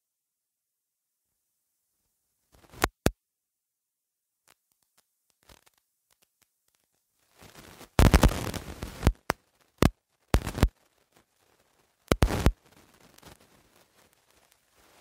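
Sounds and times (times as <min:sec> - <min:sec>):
crackling static: 0:01.4 - 0:03.2, 0:04.4 - 0:15.0
faint hiss: 0:04.4 - 0:15.0.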